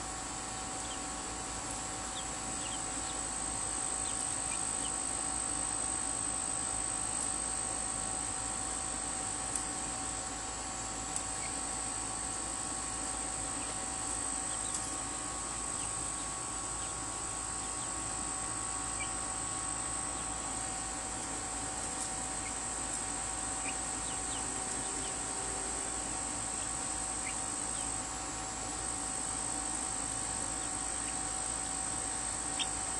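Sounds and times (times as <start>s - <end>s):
chicks peeping: 0.4s - 1.3s, 2.0s - 5.5s, 11.1s - 12.0s, 12.7s - 32.9s
crickets trilling: 21.5s - 32.9s.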